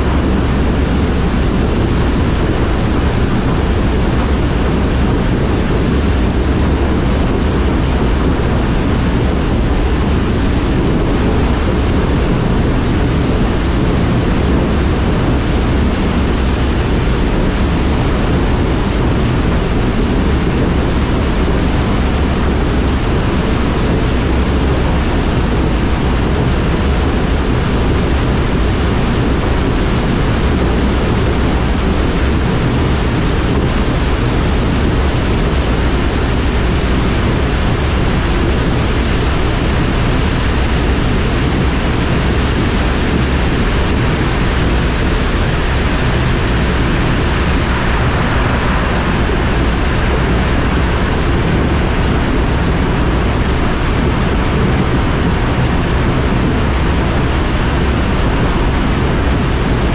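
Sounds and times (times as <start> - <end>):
loud rush of water: 0.0 - 59.9.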